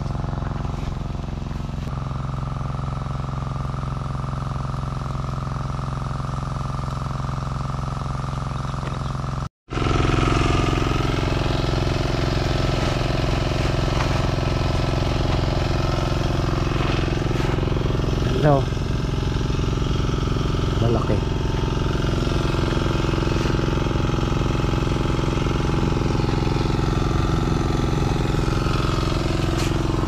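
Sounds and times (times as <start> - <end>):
engine running steadily: 0.0 - 30.0.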